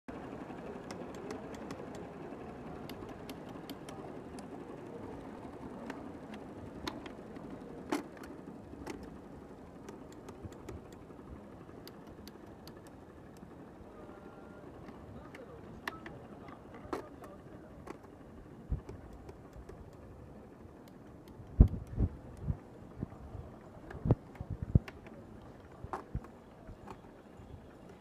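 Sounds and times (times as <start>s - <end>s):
solenoids clicking: 9.8s - 13.5s, 20.8s - 22.6s.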